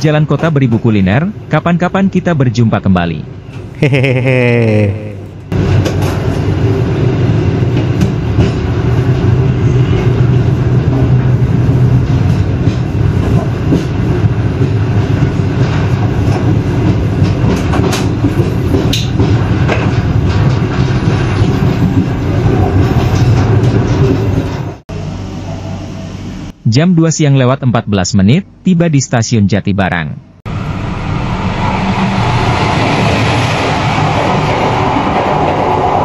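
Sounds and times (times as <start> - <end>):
train wheels rumbling on rails: 5.6 - 25.8, 30.5 - 36.0.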